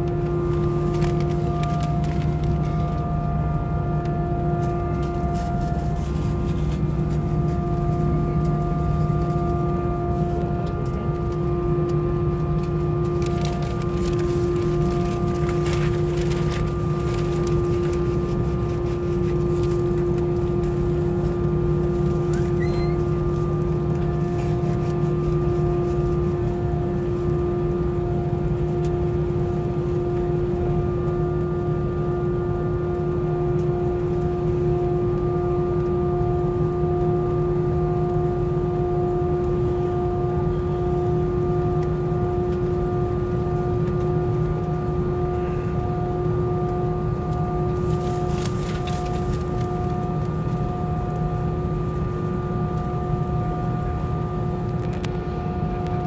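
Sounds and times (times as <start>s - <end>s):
airliner cabin drone: 0.0s - 56.0s
rustling handling noise: 0.2s - 3.0s, 4.6s - 10.8s, 12.6s - 27.3s, 47.8s - 49.7s.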